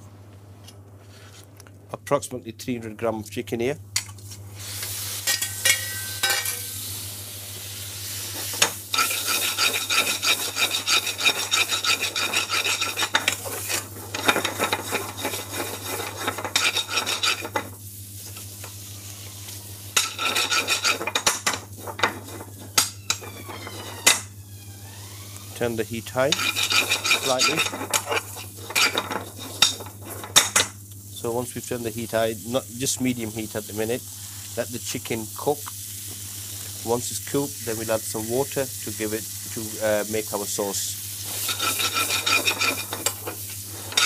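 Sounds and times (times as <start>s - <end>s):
light sizzle of frying: 4.0s - 24.4s, 25.4s - 44.0s
metal spoon scraping frying pan: 8.4s - 17.8s, 19.9s - 24.2s, 26.3s - 30.6s, 41.2s - 44.0s.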